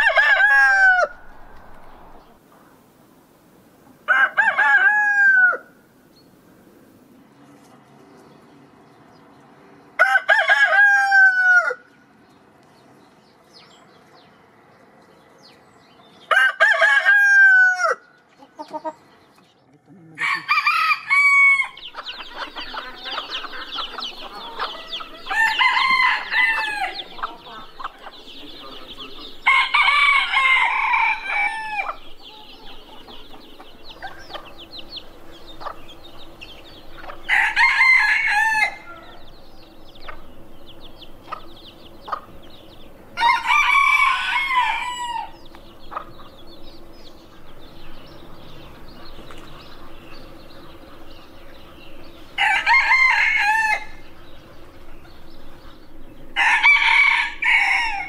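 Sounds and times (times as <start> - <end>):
rooster crowing: 0.0 - 2.4, 4.1 - 5.8, 10.0 - 11.9, 16.3 - 18.1, 20.2 - 27.8, 29.2 - 32.9, 37.2 - 39.5, 43.2 - 45.5, 52.4 - 54.3, 56.4 - 58.0
hens clucking softly: 21.9 - 25.6.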